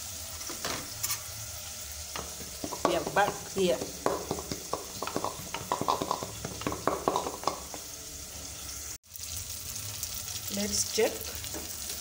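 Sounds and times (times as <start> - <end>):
frying sizzle: 0.0 - 12.0
wooden pestle pounding in mortar: 2.4 - 7.8.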